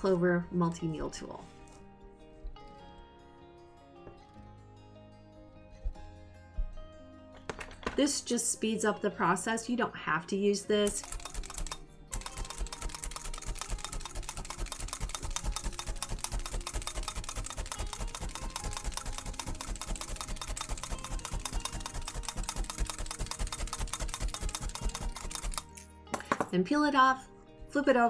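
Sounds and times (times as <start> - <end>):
felting needles stabbing wool: 10.9 - 25.7.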